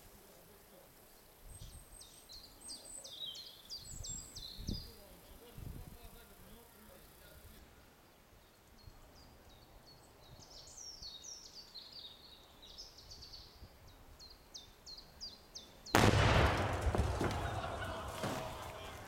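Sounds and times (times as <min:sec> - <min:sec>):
small birds chirping: 0:00.1 - 0:17.1
loud explosion with deep rumble: 0:16.0 - 0:18.7.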